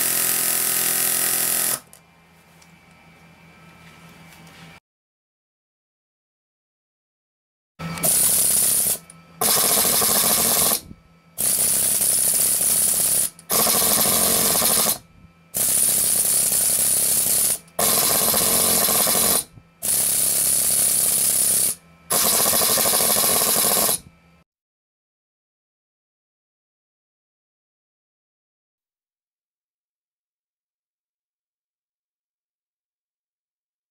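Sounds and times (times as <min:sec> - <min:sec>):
pneumatic air hammer rattling: 0:00.0 - 0:02.0, 0:08.0 - 0:15.0, 0:15.6 - 0:24.1.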